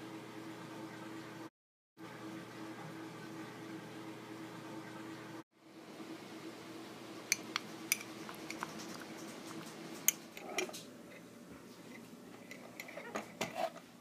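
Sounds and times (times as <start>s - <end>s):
spoon stirring wet pulp: 7.4s - 13.9s.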